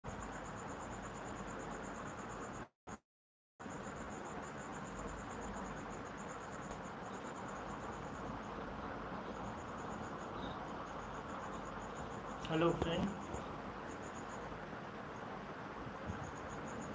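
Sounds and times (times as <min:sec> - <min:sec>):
cricket chirping: 0:00.0 - 0:02.7, 0:03.6 - 0:16.9
low hiss: 0:03.7 - 0:16.9.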